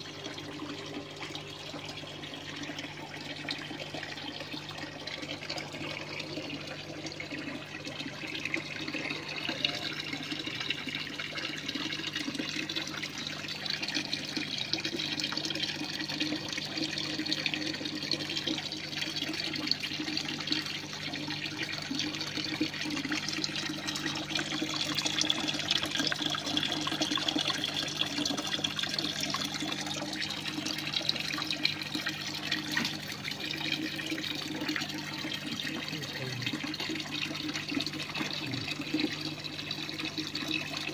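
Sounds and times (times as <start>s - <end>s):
water running and trickling: 0.0s - 40.9s.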